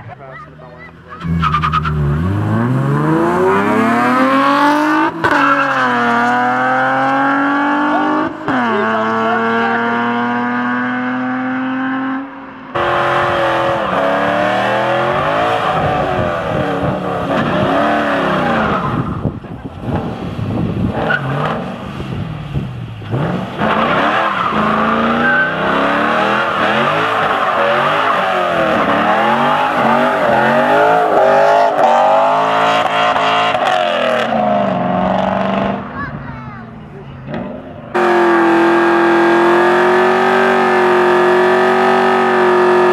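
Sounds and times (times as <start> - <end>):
car engines at full throttle: 0.0 - 42.9
car engine revving: 0.7 - 36.0, 36.8 - 42.9
tyres squealing: 23.7 - 32.4.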